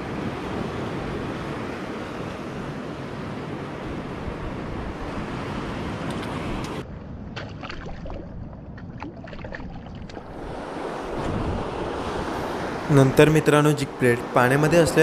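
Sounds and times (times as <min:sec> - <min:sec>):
sea surf: 0:00.0 - 0:06.8, 0:10.0 - 0:15.0
wind buffeting microphone: 0:00.0 - 0:15.0.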